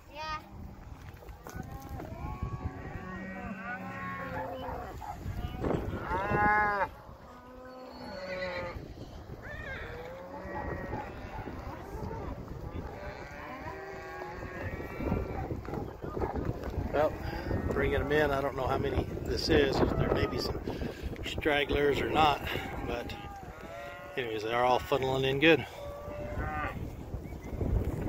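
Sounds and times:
cattle mooing and bawling: 1.6 - 15.8, 21.9 - 24.4, 25.6 - 26.9.

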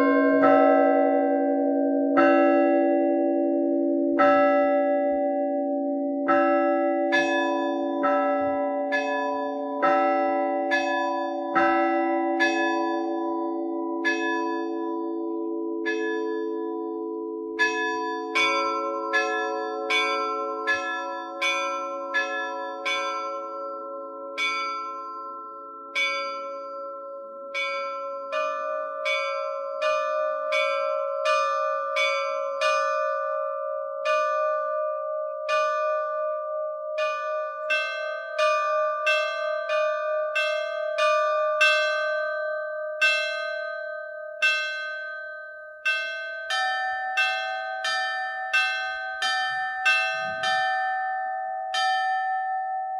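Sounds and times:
church bells ringing: 0.0 - 52.9.

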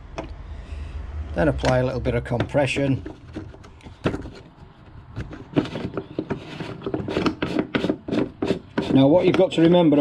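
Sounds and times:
plastic threads rubbing: 2.6 - 9.6.

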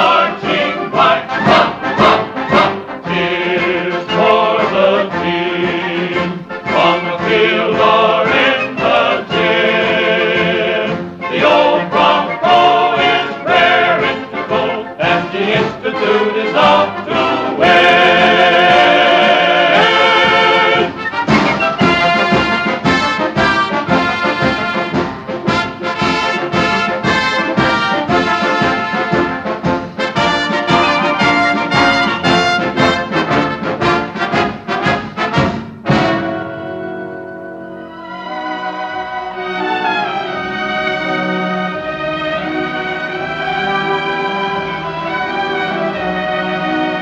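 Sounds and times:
choir singing: 0.0 - 25.0, 30.1 - 34.5, 35.9 - 47.0
orchestra playing: 0.0 - 47.0.

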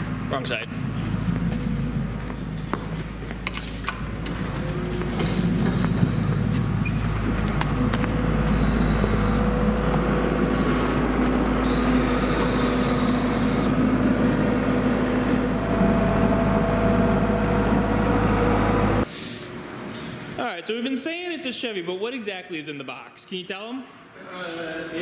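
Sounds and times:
engine running: 0.0 - 19.1.

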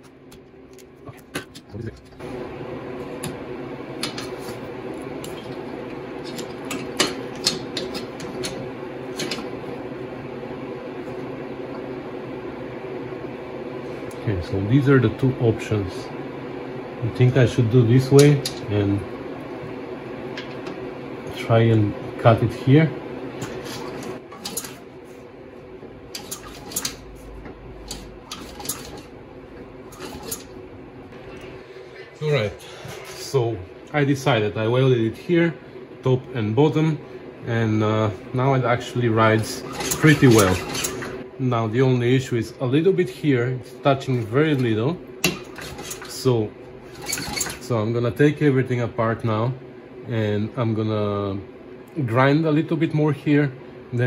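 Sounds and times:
steady background hum: 0.0 - 54.0
bicycle chain mechanical hum: 21.3 - 31.9, 36.0 - 49.4.

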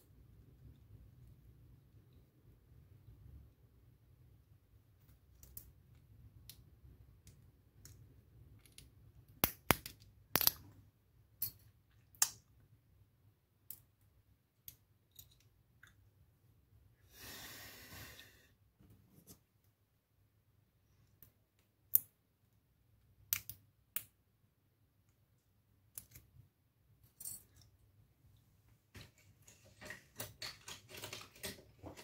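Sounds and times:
clicks and taps of small parts: 5.0 - 10.7, 13.6 - 16.0, 21.0 - 22.2, 23.2 - 24.2, 25.9 - 26.4.

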